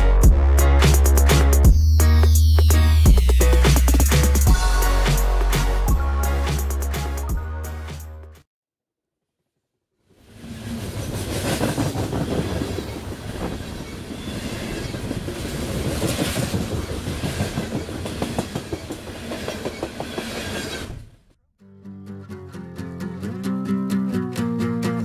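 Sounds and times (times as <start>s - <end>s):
steady train rush: 10.2s - 21.2s
train wheels clattering over rail joints: 11.2s - 21.0s.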